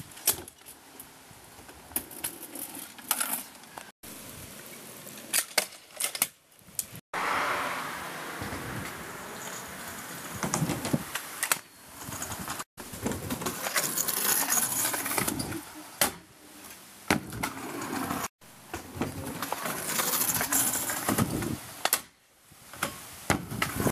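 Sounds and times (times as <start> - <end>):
scooter wheels rolling on asphalt: 0.0 - 3.9, 4.5 - 21.9, 23.0 - 23.9.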